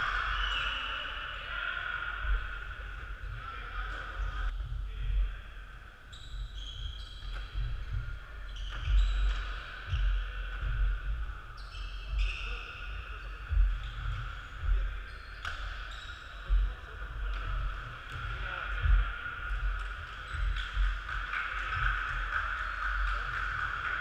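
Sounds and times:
indistinct echoing voices: 0.0 - 5.9.

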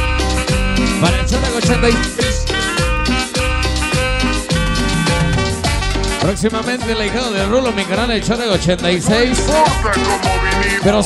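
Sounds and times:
loud dance music with beat: 0.5 - 6.4, 9.1 - 11.0.

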